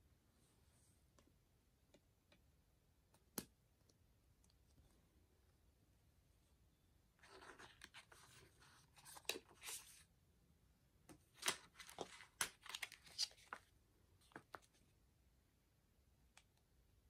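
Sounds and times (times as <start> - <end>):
paper and card rustling: 7.2 - 10.1, 11.2 - 14.8
tracing paper crinkling: 11.3 - 13.7.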